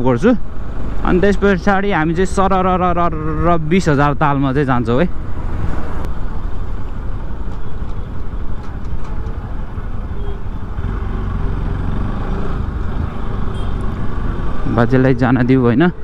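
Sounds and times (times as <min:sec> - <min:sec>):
road traffic: 0:00.0 - 0:16.0
motorcycle engine rumble: 0:05.2 - 0:15.8.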